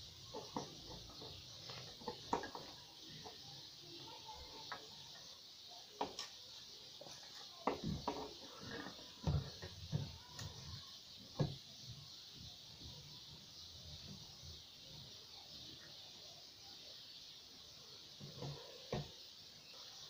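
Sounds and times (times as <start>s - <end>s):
steady hiss: 0.0s - 20.0s
knocks and scrapes of handling: 0.3s - 3.5s, 7.0s - 10.8s.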